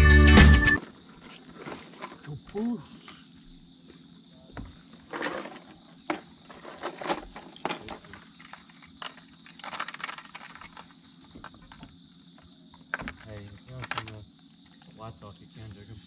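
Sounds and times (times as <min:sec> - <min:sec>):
fishing gear clinking: 0:12.9 - 0:15.0.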